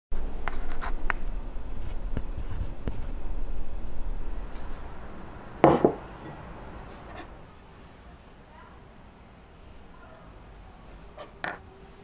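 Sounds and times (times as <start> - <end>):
low steady hum: 0.2 - 12.0
ceramic bowl clunking on table: 5.6 - 6.4.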